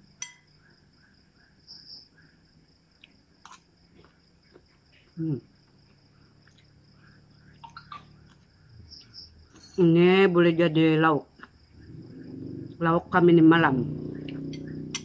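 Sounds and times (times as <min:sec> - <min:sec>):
faint insect chirping: 0:00.0 - 0:15.0
spoon clinking against glass bowl: 0:00.2 - 0:00.5
food being chewed: 0:03.0 - 0:06.8.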